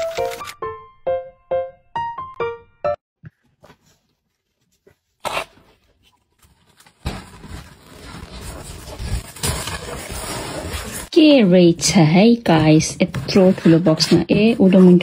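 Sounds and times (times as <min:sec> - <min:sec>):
packing tape ripping: 0:05.2 - 0:05.6.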